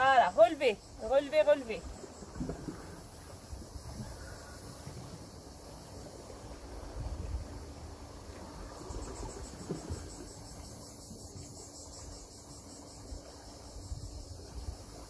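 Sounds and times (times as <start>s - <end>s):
insect trilling: 0.0s - 3.0s
wind rumble on microphone: 0.0s - 12.1s, 13.0s - 15.0s.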